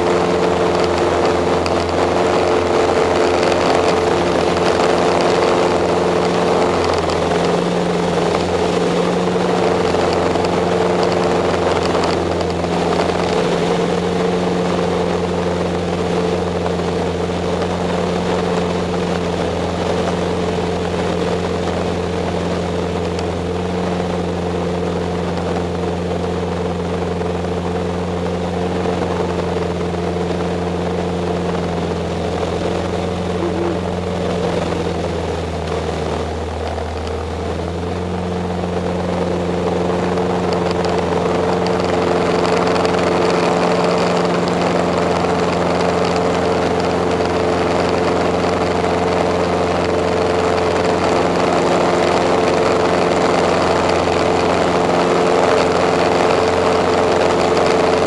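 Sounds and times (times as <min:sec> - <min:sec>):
light aircraft engine and propeller: 0:00.0 - 0:58.0.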